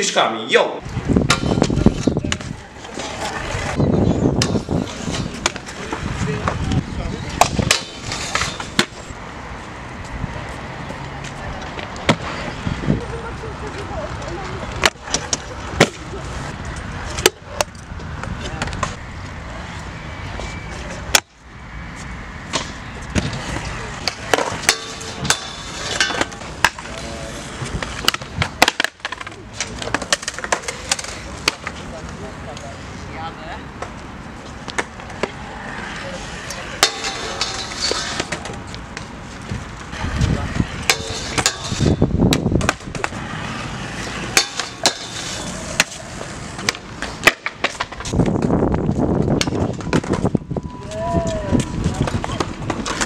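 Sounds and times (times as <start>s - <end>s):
wheels rolling on concrete: 0.8s - 53.0s
scooter clacking on ground: 34.6s - 40.1s, 40.7s - 53.0s
decks clacking and banging: 36.5s - 39.9s, 40.8s - 43.3s.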